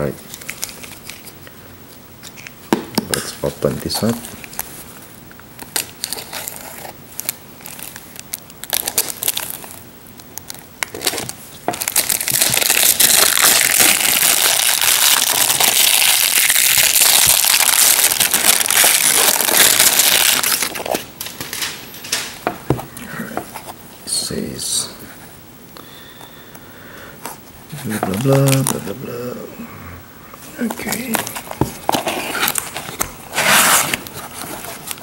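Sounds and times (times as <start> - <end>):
plastic film crinkling: 0.1 - 1.5, 3.2 - 22.5, 27.8 - 29.2, 30.6 - 35.0
knife slitting plastic wrap: 11.8 - 20.8.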